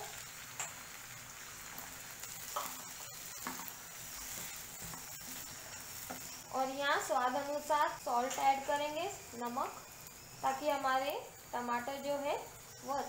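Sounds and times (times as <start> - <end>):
vegetables sizzling in a frying pan: 0.0 - 13.0
spatula stirring and scraping: 1.4 - 6.5.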